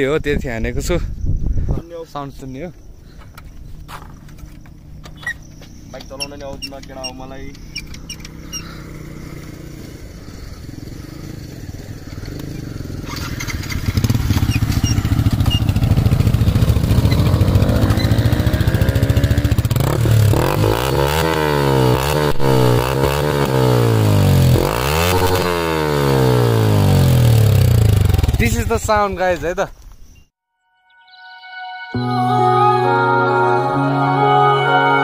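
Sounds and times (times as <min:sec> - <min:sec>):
motorcycle engine revving: 0:03.7 - 0:29.1.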